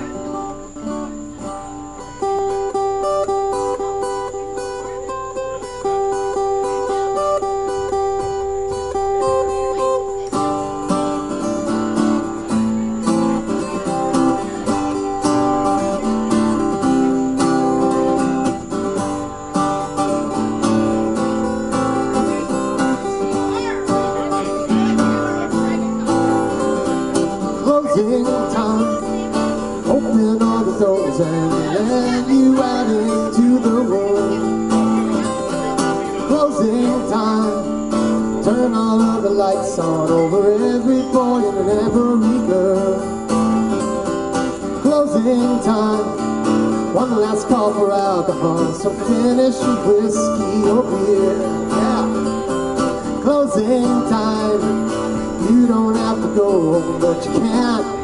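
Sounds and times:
acoustic guitars strummed: 0.0s - 58.0s
person singing: 27.4s - 44.0s, 44.6s - 58.0s.

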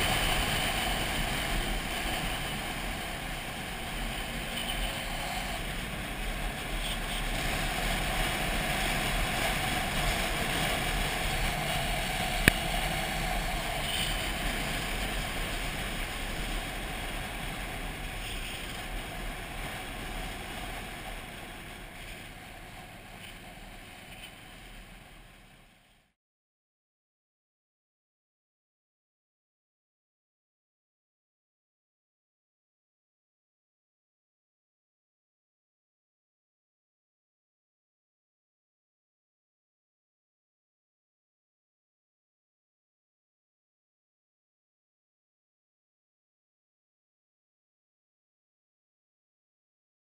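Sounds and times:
wind noise: 0.0s - 26.0s.

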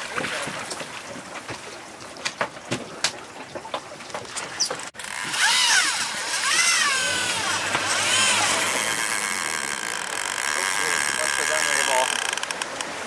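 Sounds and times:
water noise: 0.0s - 13.0s
wind: 0.0s - 13.0s
fishing reel gears whining: 5.0s - 12.8s
sharp reel clicks: 5.0s - 12.9s.

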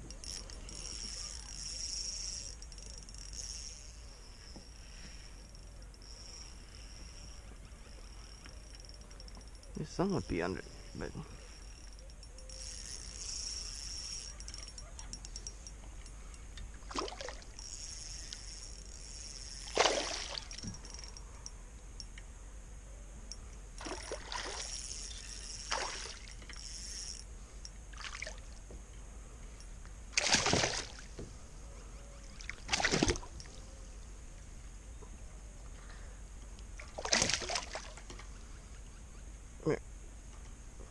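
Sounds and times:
fish splashing at water surface: 19.6s - 20.6s, 30.2s - 31.1s, 32.5s - 33.3s, 36.9s - 38.0s.

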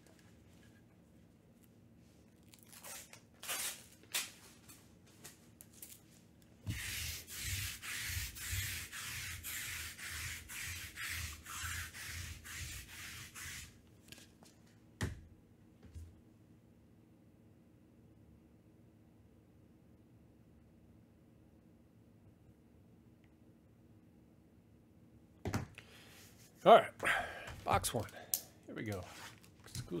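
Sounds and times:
lint roller scraping a mat: 6.6s - 13.8s, 29.0s - 29.5s.

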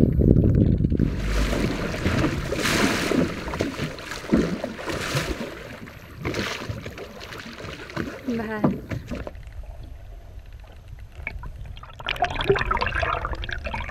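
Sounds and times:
wind buffeting microphone: 0.0s - 7.1s
water rushing along boat hull: 0.0s - 13.9s
water splashing: 0.5s - 9.6s, 11.2s - 13.9s.

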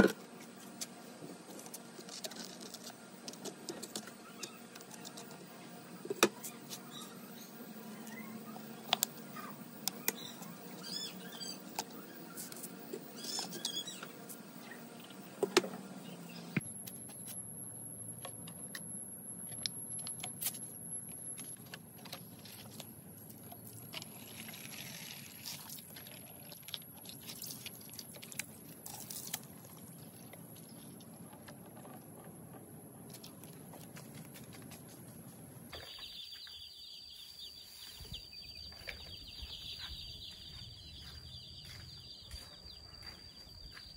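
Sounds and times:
chicks peeping: 35.8s - 43.2s.

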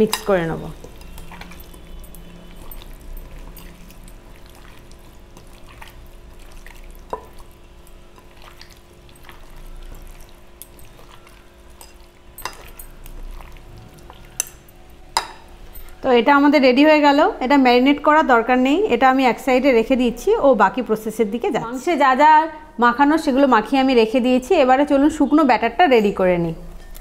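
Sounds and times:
wet squelching of meat in paste: 0.8s - 14.5s.

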